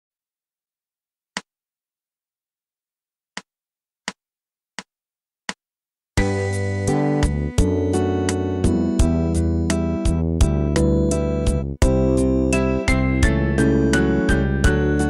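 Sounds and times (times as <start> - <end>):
music: 6.2 - 15.0.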